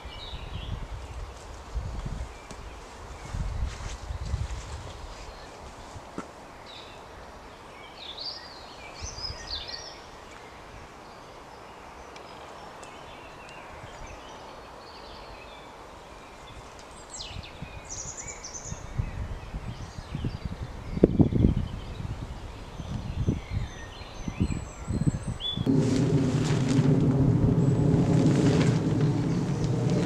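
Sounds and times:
songbirds singing: 0:00.0 - 0:25.7, 0:27.5 - 0:30.0
rustles: 0:00.9 - 0:10.9, 0:25.6 - 0:30.0.

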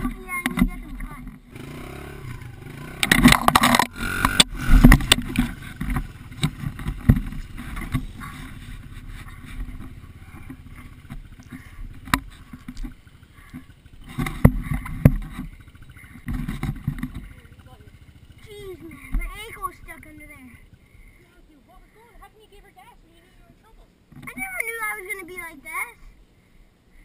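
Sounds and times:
dirt bike engine: 0:00.0 - 0:27.0
crash clattering through brush: 0:02.9 - 0:17.4.

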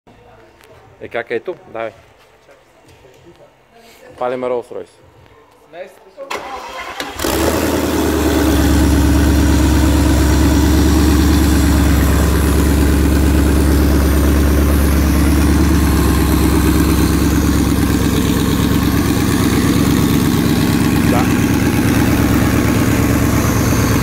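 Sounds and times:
engine idling: 0:06.5 - 0:24.0.

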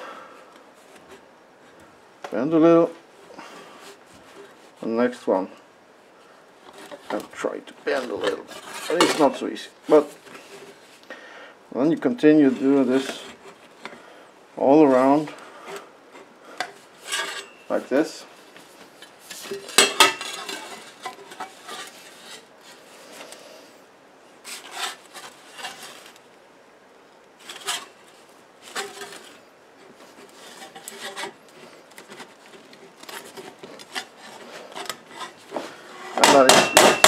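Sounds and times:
hammer striking sheet metal: 0:36.2 - 0:37.0.

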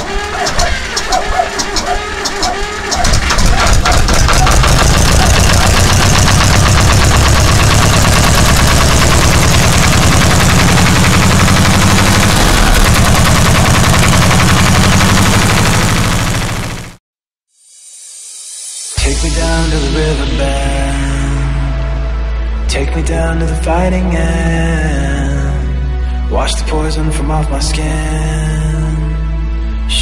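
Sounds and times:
tractor diesel engine idling: 0:00.0 - 0:17.0.

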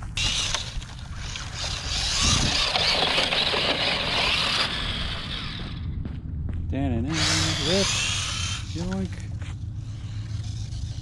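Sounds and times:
grass rustling against toy truck: 0:00.0 - 0:05.6
electric toy truck motor: 0:00.1 - 0:05.8, 0:07.1 - 0:09.2, 0:09.8 - 0:11.0.

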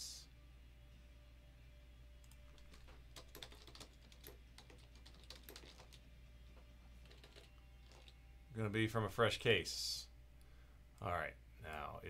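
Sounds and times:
low steady hum: 0:00.0 - 0:12.0
keyboard typing: 0:02.2 - 0:06.0, 0:07.0 - 0:08.2.

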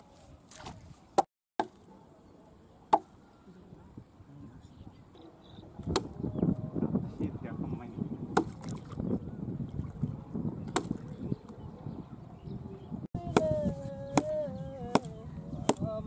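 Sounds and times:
sharp chopping knocks: 0:05.8 - 0:06.2, 0:10.7 - 0:11.0, 0:14.9 - 0:15.1
man singing: 0:13.2 - 0:16.0.

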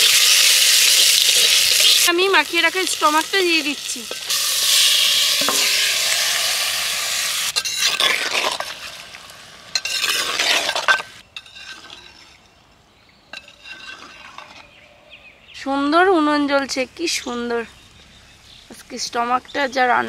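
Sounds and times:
meat sizzling in hot oil: 0:00.0 - 0:10.8
metal ladle scraping pot: 0:04.0 - 0:06.2, 0:07.5 - 0:09.1, 0:09.7 - 0:12.6, 0:13.3 - 0:14.8.

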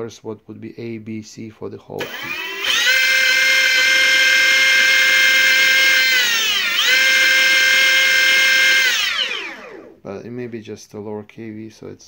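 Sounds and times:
high electric motor whine: 0:02.0 - 0:10.0.

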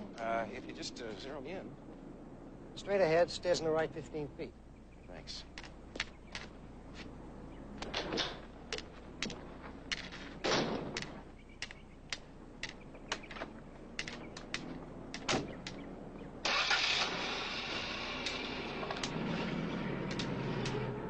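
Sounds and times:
footsteps on pavement: 0:05.6 - 0:16.0
white cane tapping: 0:10.9 - 0:15.8.

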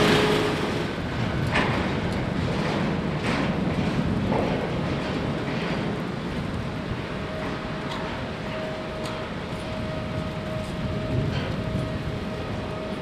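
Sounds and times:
machinery running: 0:00.0 - 0:01.8.

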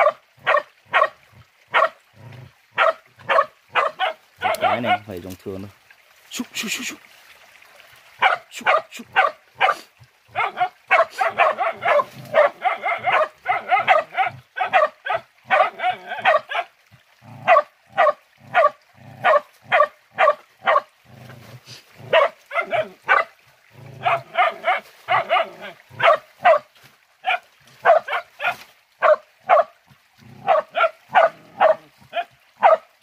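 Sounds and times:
dogs barking rapidly: 0:00.0 - 0:02.0, 0:02.8 - 0:05.1, 0:08.2 - 0:16.7, 0:17.4 - 0:20.9, 0:22.0 - 0:23.3, 0:24.0 - 0:29.7, 0:30.4 - 0:32.9.

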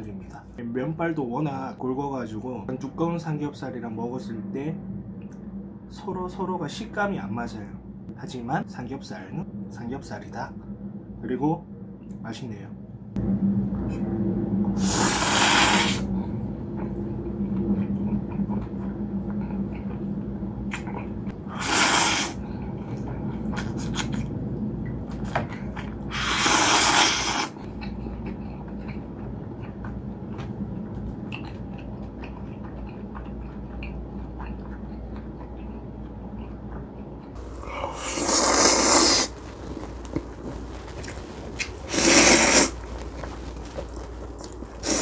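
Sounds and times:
person slurping noodles: 0:14.8 - 0:16.1, 0:21.5 - 0:22.4, 0:26.1 - 0:27.6, 0:37.4 - 0:45.0
wet chewing with small clicks: 0:16.7 - 0:21.4, 0:22.4 - 0:26.2, 0:27.6 - 0:45.0.

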